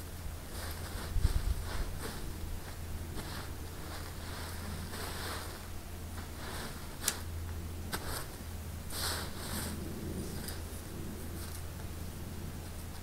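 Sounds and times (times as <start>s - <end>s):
shovel scraping through soil: 3.2s - 7.3s.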